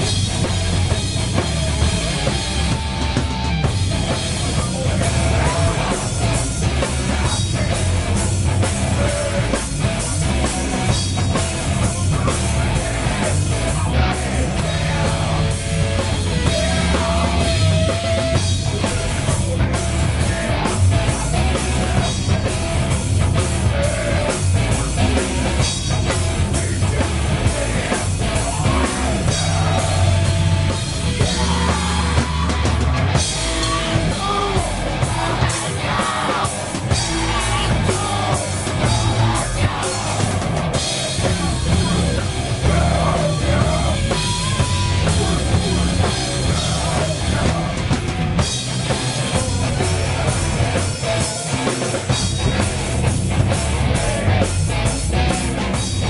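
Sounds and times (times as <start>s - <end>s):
heavy metal band playing: 0.0s - 56.0s.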